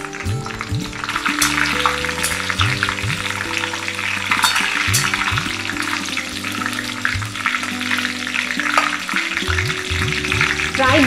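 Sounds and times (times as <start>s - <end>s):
leaves sizzling in hot oil: 0.0s - 11.0s
soft background music: 0.0s - 11.0s
metal spatula stirring: 0.5s - 10.8s.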